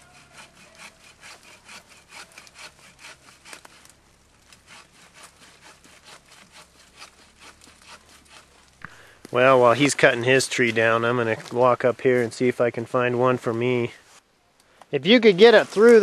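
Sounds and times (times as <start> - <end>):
hand saw cutting through trunk: 0.0 - 11.5.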